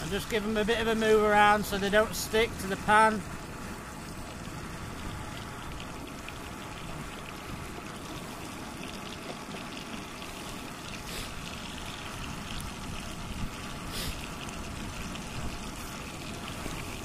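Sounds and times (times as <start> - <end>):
fish sizzling in frying pan: 4.4 - 17.0
wind rumble on microphone: 11.4 - 17.0.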